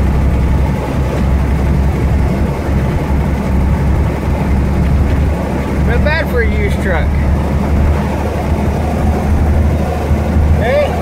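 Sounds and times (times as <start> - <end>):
truck engine and road noise: 0.0 - 11.0.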